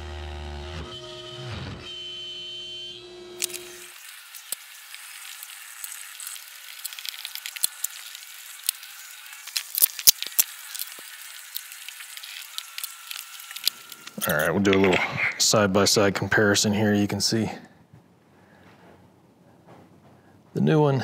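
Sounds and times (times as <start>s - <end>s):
hand tools clicking and knocking: 13.5s - 15.4s.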